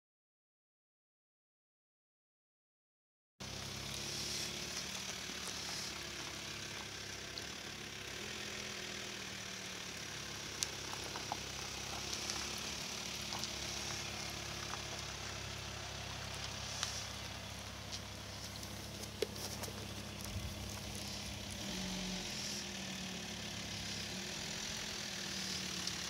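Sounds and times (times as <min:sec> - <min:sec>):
background hiss: 0:09.6 - 0:22.7
low mechanical hum: 0:09.7 - 0:26.0.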